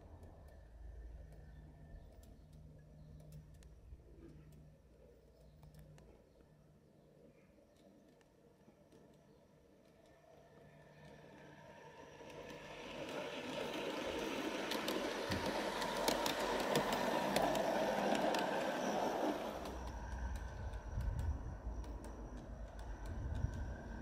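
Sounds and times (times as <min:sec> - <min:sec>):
model train wheels rolling: 0:08.8 - 0:24.0.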